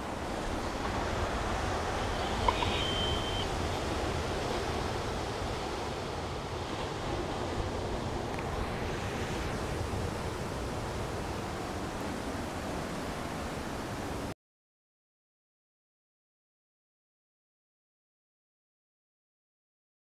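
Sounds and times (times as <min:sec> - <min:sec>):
steady rushing hiss: 0:00.0 - 0:14.0
short high beep: 0:02.1 - 0:03.5.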